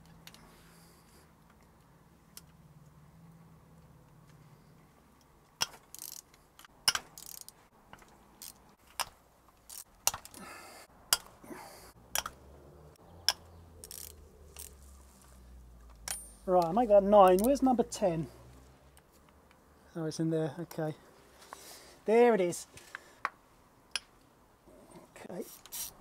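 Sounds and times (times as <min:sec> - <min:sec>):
tools and bolts clinking: 0:05.2 - 0:10.4, 0:12.1 - 0:12.4, 0:13.2 - 0:15.0, 0:15.8 - 0:17.6.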